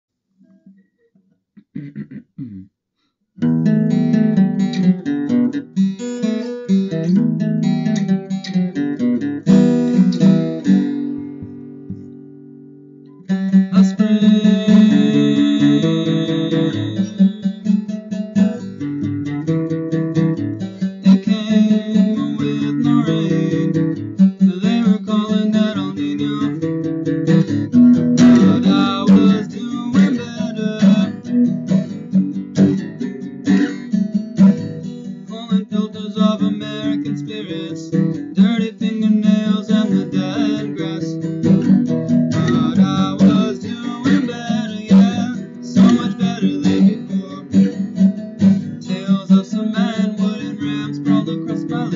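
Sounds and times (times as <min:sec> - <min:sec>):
acoustic guitar strumming: 0:03.4 - 0:51.9
man singing: 0:13.5 - 0:17.7, 0:20.8 - 0:27.6, 0:28.2 - 0:32.0, 0:35.2 - 0:51.9.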